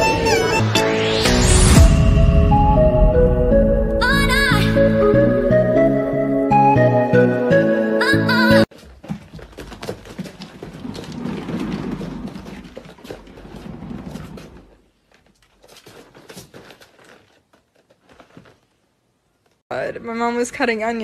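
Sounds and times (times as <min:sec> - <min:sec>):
cat paws pattering on hard surface: 0:08.7 - 0:14.4.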